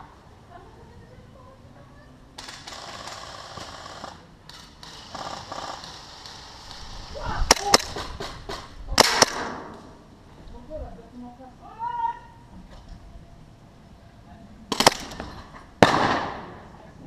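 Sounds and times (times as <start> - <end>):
automatic airsoft gunfire: 9.0 - 9.7, 14.7 - 16.6.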